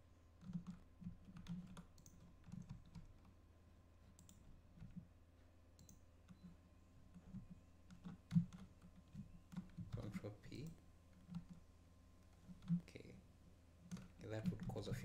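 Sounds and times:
faint electrical hum: 0:00.0 - 0:15.0
keyboard key presses: 0:00.4 - 0:03.3, 0:07.1 - 0:11.6
mouse clicks: 0:01.8 - 0:02.2, 0:04.2 - 0:04.4, 0:05.8 - 0:06.4.

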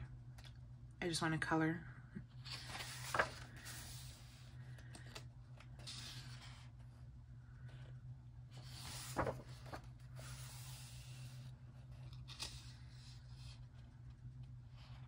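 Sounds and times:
faint low hum: 0:00.0 - 0:15.0
paper crinkle: 0:02.4 - 0:04.1, 0:08.6 - 0:10.7
paper page turning: 0:02.4 - 0:04.3, 0:08.6 - 0:11.1, 0:11.9 - 0:13.8
hand brushing pages: 0:02.5 - 0:04.2, 0:08.6 - 0:11.0.

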